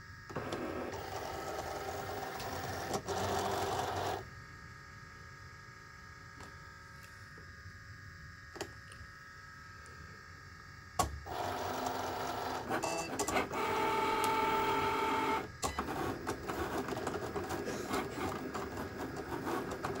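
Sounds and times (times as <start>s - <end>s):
cutting machine motors whirring: 11.3s - 20.0s.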